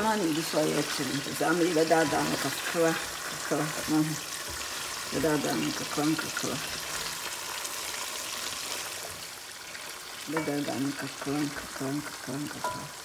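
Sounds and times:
person speaking: 0:00.0 - 0:04.2, 0:10.3 - 0:13.0
chicken sizzling in oil: 0:00.0 - 0:13.0.

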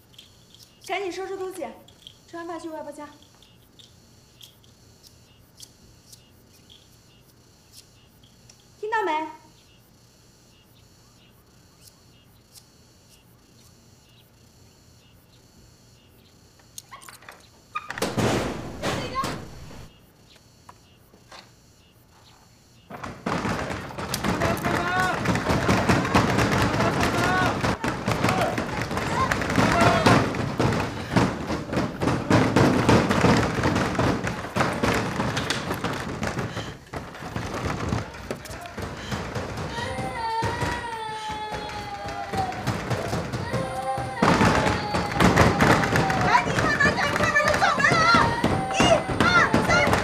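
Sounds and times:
faint crickets chirping: 0:00.0 - 0:50.0
wooden door banging and rattling: 0:17.0 - 0:20.0, 0:22.8 - 0:50.0.

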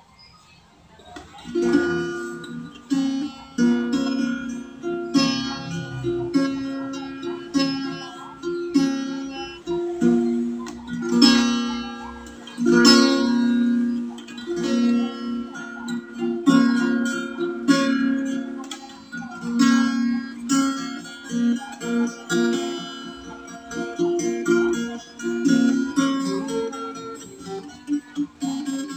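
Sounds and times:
acoustic guitar strumming: 0:01.3 - 0:28.9.

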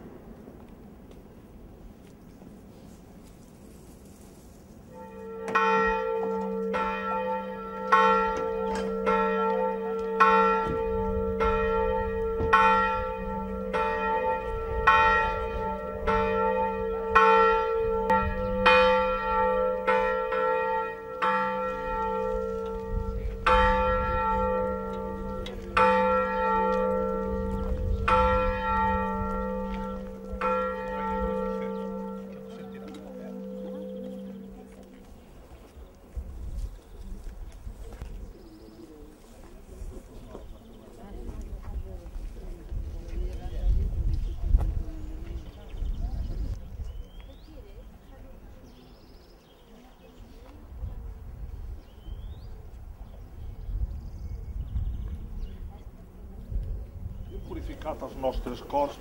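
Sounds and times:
church bell ringing: 0:04.9 - 0:35.1, 0:57.6 - 0:59.0.

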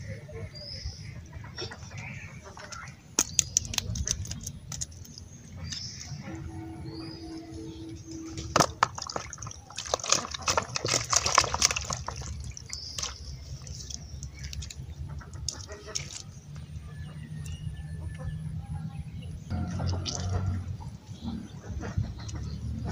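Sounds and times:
fish splashing in water: 0:02.5 - 0:06.2, 0:07.7 - 0:16.4, 0:19.5 - 0:21.0
wet slaps and knocks: 0:02.7 - 0:05.0, 0:08.6 - 0:14.8.

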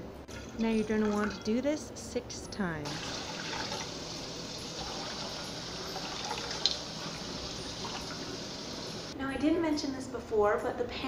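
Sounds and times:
water pouring into saucepan: 0:02.9 - 0:09.1.

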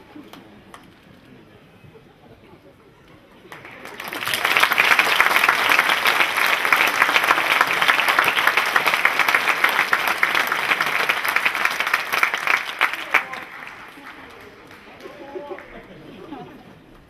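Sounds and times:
audience applauding: 0:03.4 - 0:16.1.

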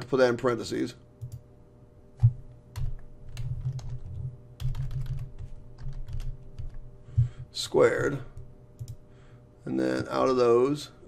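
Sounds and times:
keyboard typing: 0:02.2 - 0:06.8, 0:08.8 - 0:09.0.

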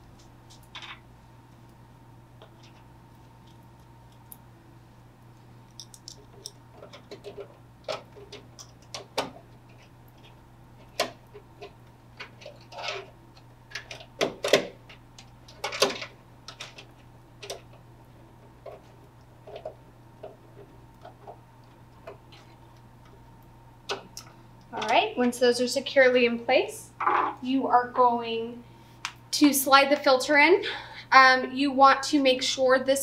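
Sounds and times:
low steady hum: 0:00.0 - 0:33.0.

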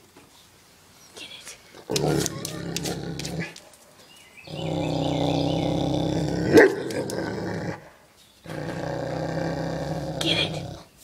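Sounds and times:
dog growling low: 0:01.8 - 0:03.6, 0:04.4 - 0:10.9
dog barking: 0:06.5 - 0:06.8.

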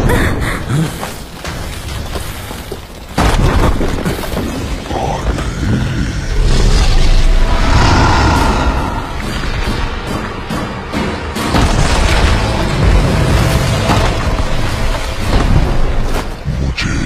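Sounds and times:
low rumble: 0:04.8 - 0:17.0.

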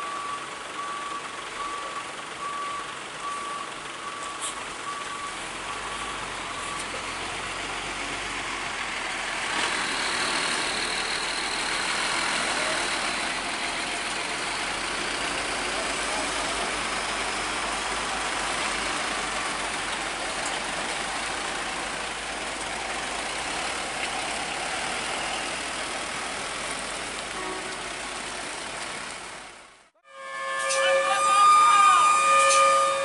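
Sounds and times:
reversing alarm beeping: 0:00.0 - 0:07.2, 0:30.1 - 0:33.0
heavy vehicle noise: 0:00.0 - 0:33.0
truck engine: 0:00.0 - 0:33.0.

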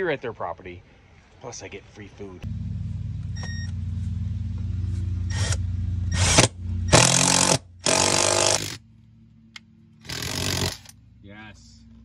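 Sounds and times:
power drill grinding: 0:05.3 - 0:08.8, 0:10.0 - 0:11.0.

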